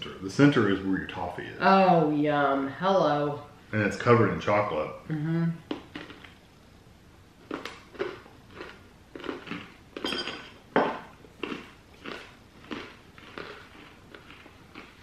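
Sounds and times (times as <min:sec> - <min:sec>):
person chewing crunchy toffee: 0:05.7 - 0:06.4, 0:07.4 - 0:10.2, 0:11.0 - 0:15.0.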